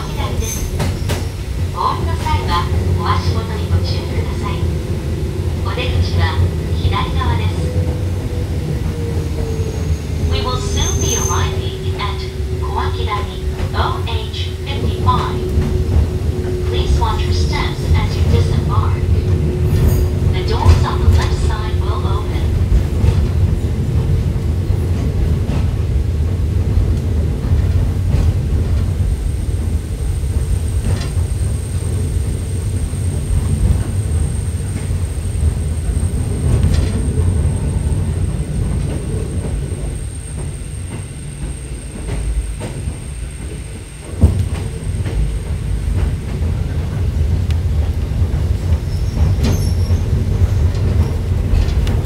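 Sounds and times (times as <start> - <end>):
train wheels rumbling on rail: 0.0 - 52.0
high wheel squeal: 9.6 - 11.8.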